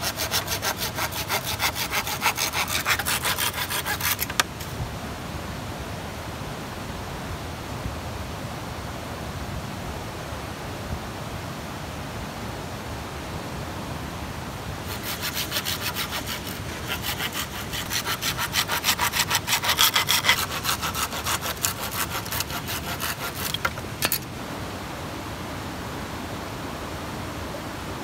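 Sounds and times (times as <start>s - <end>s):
saw cutting bamboo: 0.0s - 4.7s, 14.8s - 24.3s
steady rushing hiss: 0.0s - 5.2s, 14.4s - 28.0s.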